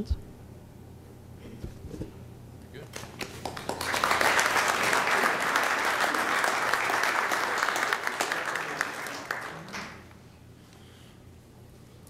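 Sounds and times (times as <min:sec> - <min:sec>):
audience applauding: 0:02.9 - 0:10.2.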